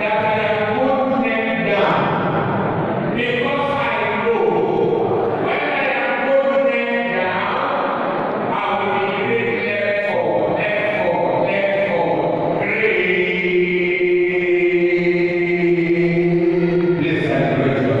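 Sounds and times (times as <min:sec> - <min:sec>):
voices chanting together: 0:04.5 - 0:18.0.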